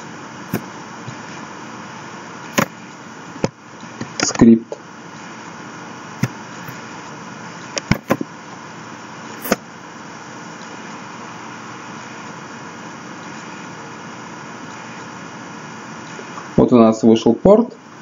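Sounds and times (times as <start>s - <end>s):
background hiss and hum: 0.0s - 18.0s.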